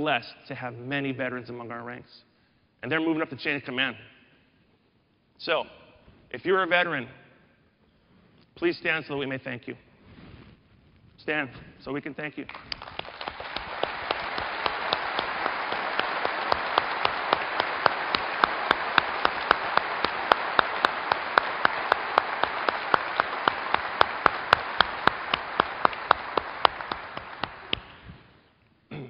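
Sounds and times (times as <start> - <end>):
audience applauding: 12.5 - 28.1
nearby person clapping: 12.5 - 28.2.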